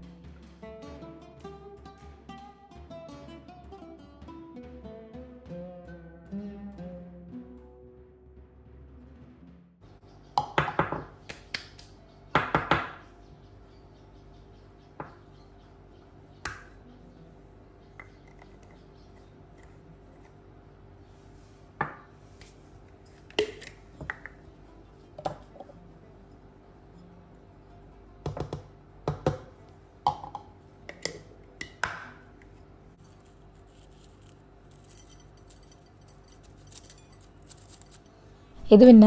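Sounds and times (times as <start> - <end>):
glass jars set down on counter: 30.1 - 31.2
metal spoon clinking on glass jars: 34.7 - 38.1.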